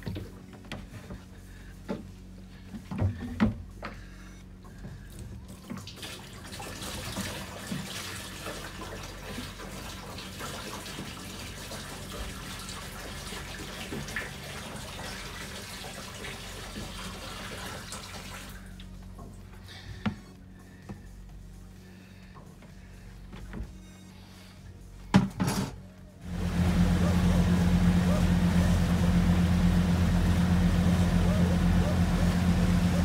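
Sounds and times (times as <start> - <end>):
water gushing into a tank: 5.7 - 18.7.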